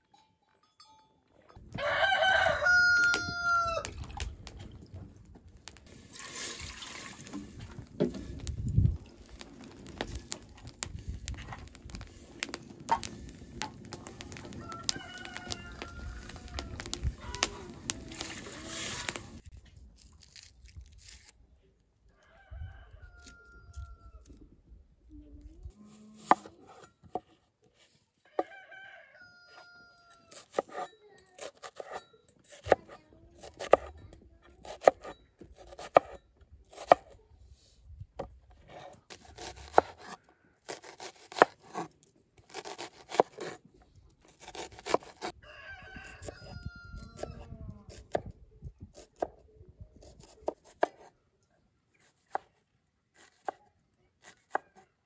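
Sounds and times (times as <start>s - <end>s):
rooster crowing: 1.7s - 3.9s, 14.4s - 17.6s, 22.2s - 24.2s, 28.3s - 30.3s, 45.3s - 47.4s
water pouring into pot: 5.9s - 7.7s.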